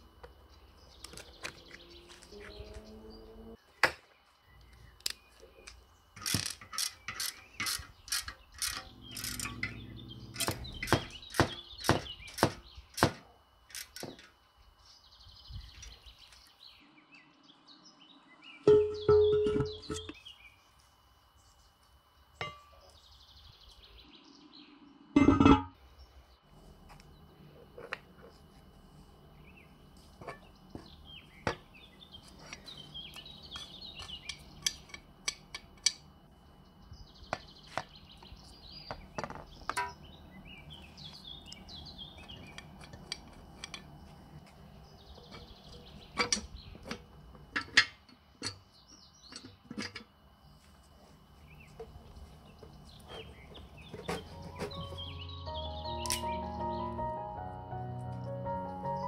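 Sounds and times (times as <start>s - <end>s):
birds chirping: 0.0s - 20.7s, 29.4s - 34.9s, 36.4s - 47.8s, 51.3s - 59.0s
cast iron parts clinking: 6.2s - 12.6s, 32.4s - 36.1s, 42.2s - 44.0s, 46.1s - 48.7s, 53.9s - 55.1s.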